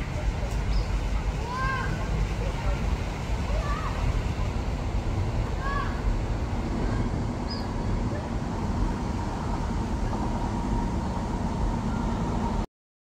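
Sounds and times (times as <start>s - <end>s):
outdoor background rumble: 0.0s - 12.7s
faint high chirp: 7.5s - 7.7s.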